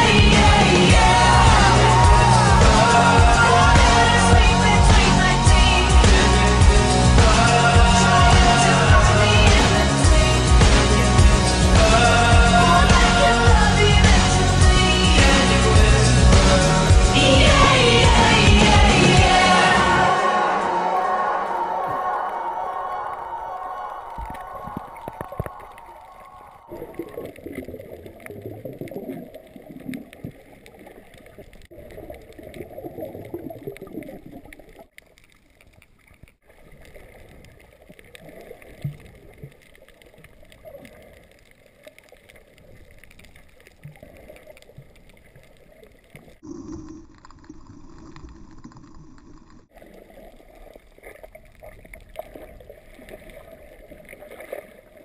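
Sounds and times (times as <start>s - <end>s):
music: 0.0s - 22.4s
muffled underwater sloshing: 17.0s - 55.0s.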